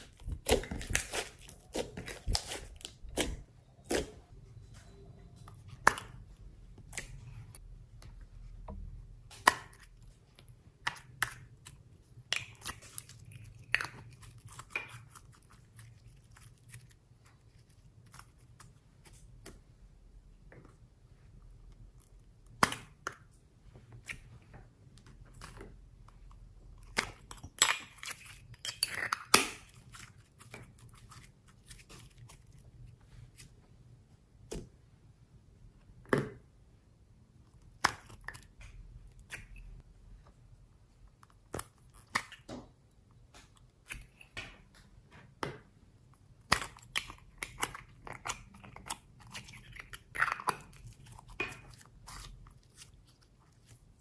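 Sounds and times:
sticky slime sounds: 0:00.0 - 0:04.3, 0:08.9 - 0:19.7, 0:21.2 - 0:33.6, 0:46.2 - 0:54.0.

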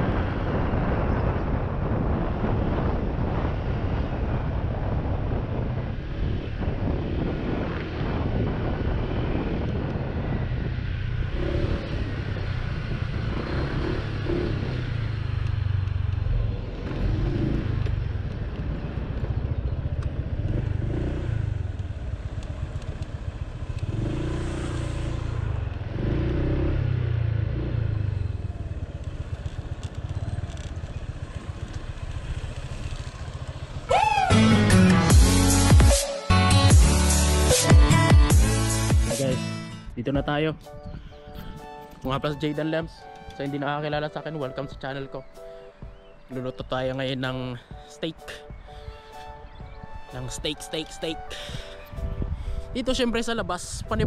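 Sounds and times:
road and wind noise: 0:00.0 - 0:54.0
scooter engine running: 0:10.6 - 0:35.4.

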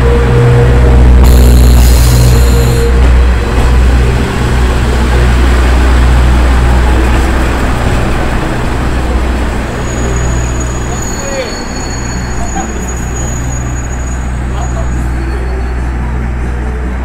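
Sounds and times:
train engine and wheel rumble: 0:00.0 - 0:17.0
brief high squeal: 0:09.8 - 0:15.8.

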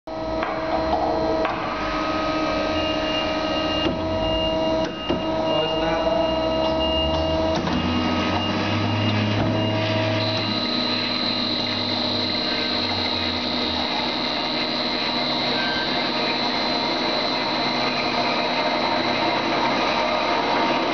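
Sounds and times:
broken high tone: 0:03.0 - 0:19.4
bandsaw running: 0:09.8 - 0:20.9.

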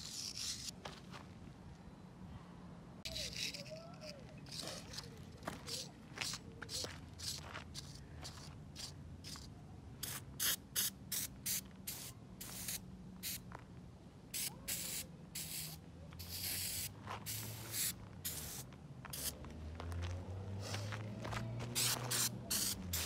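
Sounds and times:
aerosol spray hissing: 0:14.4 - 0:18.6, 0:21.8 - 0:23.0.

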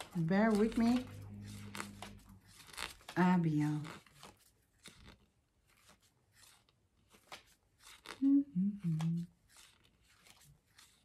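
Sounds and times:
paper rustling and page turns: 0:00.0 - 0:11.0
woman murmuring: 0:08.2 - 0:09.3.

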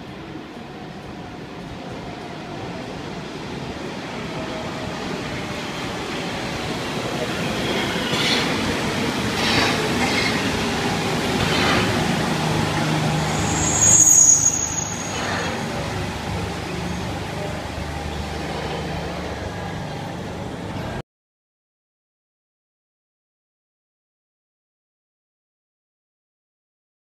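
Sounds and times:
metro train running noise: 0:00.0 - 0:21.0
high-pitched train squeal: 0:13.0 - 0:15.9.

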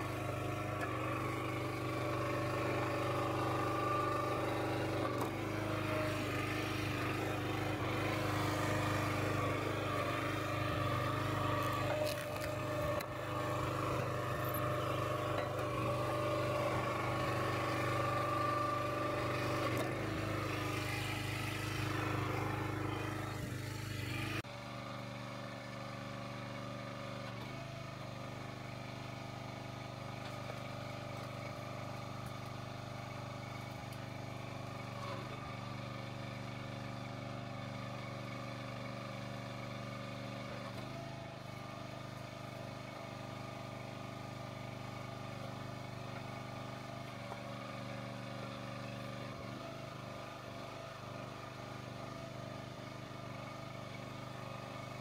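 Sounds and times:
small engine running: 0:00.0 - 0:55.0.

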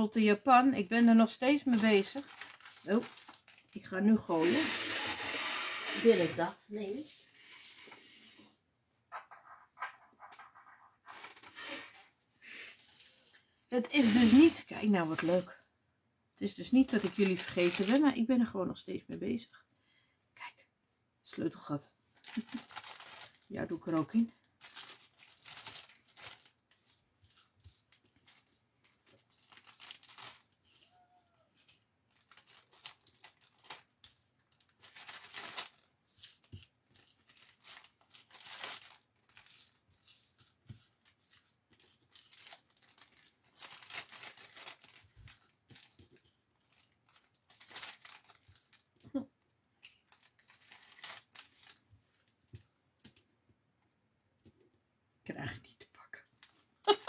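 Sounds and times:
cellophane bag crinkling: 0:01.5 - 0:06.3, 0:12.6 - 0:13.4, 0:16.8 - 0:18.2, 0:22.2 - 0:49.2, 0:49.8 - 0:52.5.

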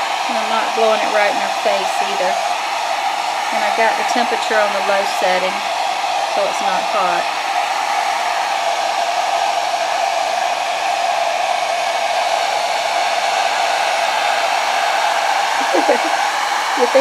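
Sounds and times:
hair dryer blowing: 0:00.0 - 0:17.0.

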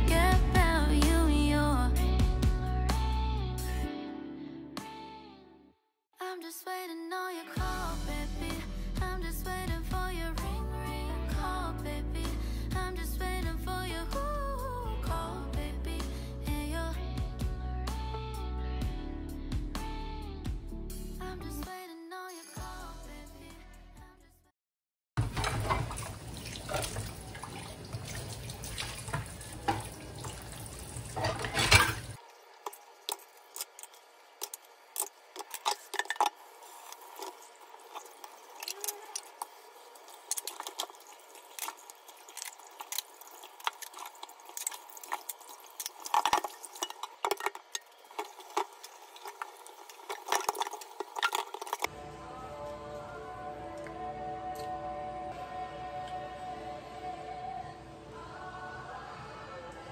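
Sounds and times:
dishes clinking: 0:29.0 - 0:32.2.

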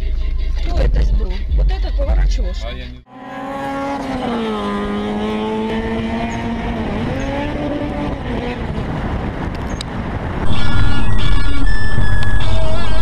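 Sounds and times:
road noise: 0:02.6 - 0:13.0
car engine: 0:03.1 - 0:13.0.

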